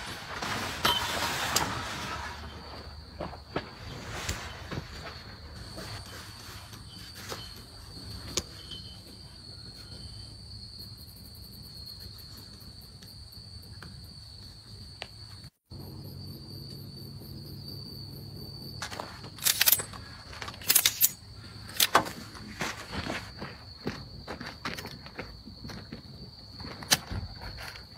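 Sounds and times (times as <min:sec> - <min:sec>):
insects buzzing: 0:00.0 - 0:27.9
sharp handling clatters: 0:18.8 - 0:23.1.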